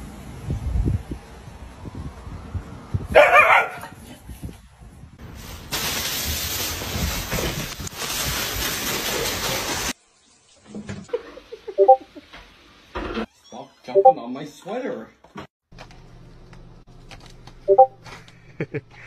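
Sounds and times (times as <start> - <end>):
dog barking: 3.1 - 4.0.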